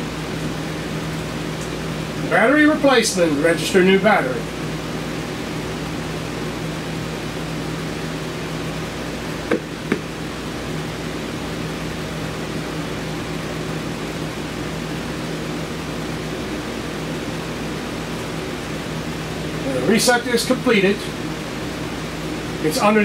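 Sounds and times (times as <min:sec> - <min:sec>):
fan-like mechanical hum: 0:00.0 - 0:23.0.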